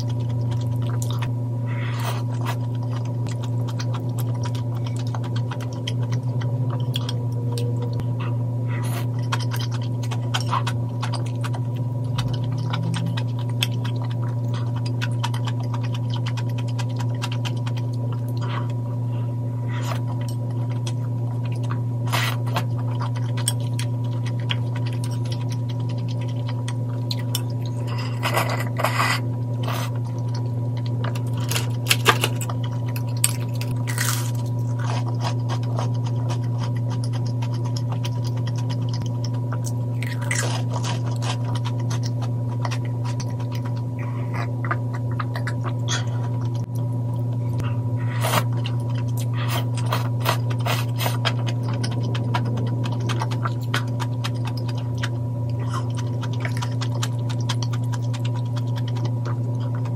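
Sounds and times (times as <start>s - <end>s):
steady low hum: 0.0s - 59.9s
noodles slurped and chewed: 8.8s - 18.8s, 19.6s - 46.8s, 47.6s - 59.9s
crunchy bite: 31.1s - 38.9s, 39.5s - 46.4s.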